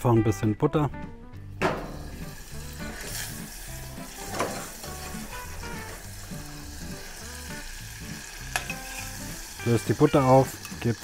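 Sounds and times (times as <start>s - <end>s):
quiet background music: 0.0s - 11.0s
sharp knock: 1.6s - 2.0s
butter sizzling in a saucepan: 1.6s - 11.0s
spoon stirring: 8.5s - 9.3s.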